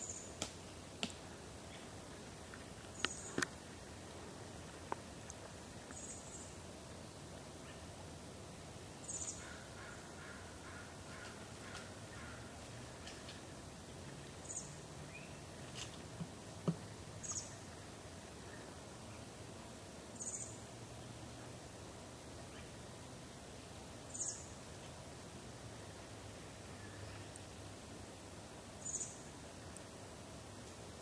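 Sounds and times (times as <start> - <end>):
steady outdoor hush: 0.0 - 31.0.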